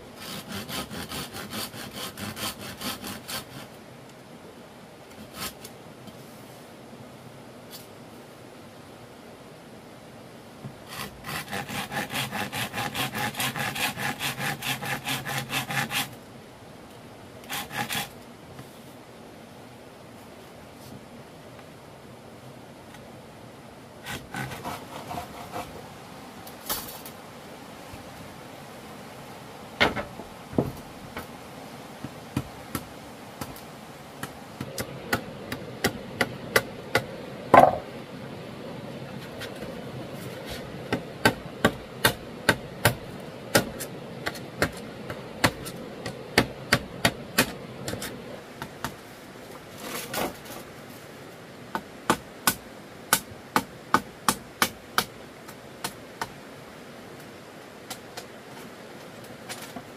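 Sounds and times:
hand tool knocking on wood: 37.6s - 37.8s.

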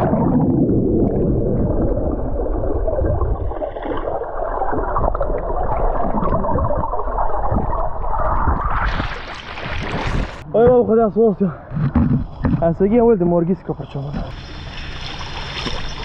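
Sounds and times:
muffled underwater churning and bubbling: 0.0s - 10.4s.

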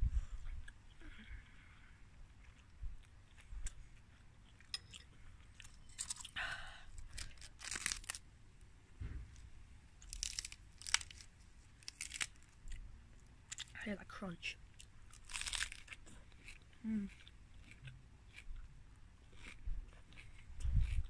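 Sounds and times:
close chewing: 0.5s - 6.4s, 7.0s - 8.2s, 10.0s - 12.8s, 14.8s - 21.0s
lettuce leaf tearing: 7.1s - 8.2s, 10.0s - 12.6s, 15.1s - 16.0s.

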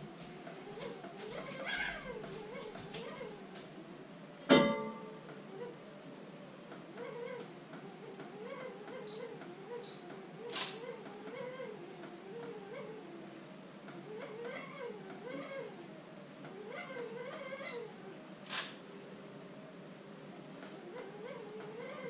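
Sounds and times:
camera focus beeps: 9.0s - 10.8s, 17.7s - 17.9s
camera shutter click: 10.5s - 10.8s, 18.5s - 18.8s
wavering voice-like sound: 14.0s - 15.8s.

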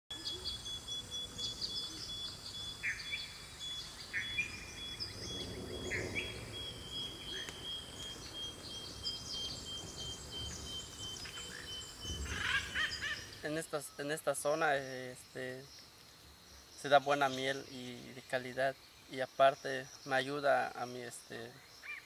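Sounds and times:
birds chirping and calling: 0.1s - 22.0s
high-pitched insect trill: 0.2s - 22.0s.

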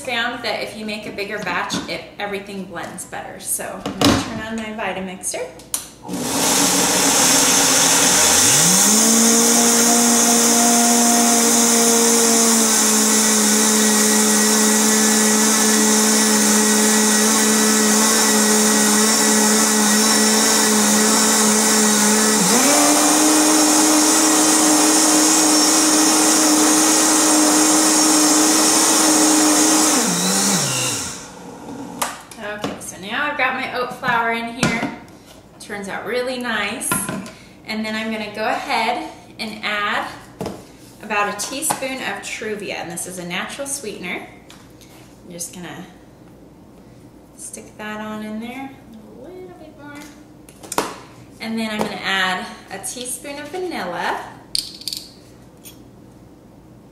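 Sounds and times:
blender motor grinding oats: 6.0s - 32.0s.

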